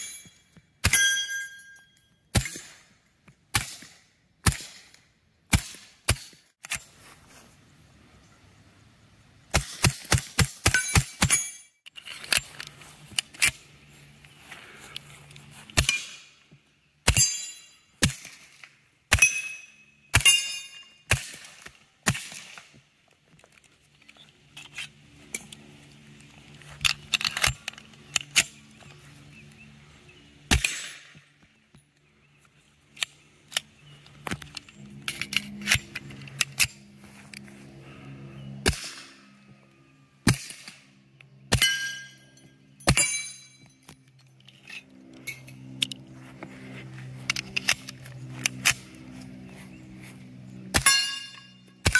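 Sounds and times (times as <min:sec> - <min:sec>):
steel targets clanging and ringing: 0:00.0 - 0:02.8, 0:10.6 - 0:11.8, 0:17.0 - 0:18.4, 0:19.1 - 0:21.1, 0:41.5 - 0:45.6, 0:50.7 - 0:51.9.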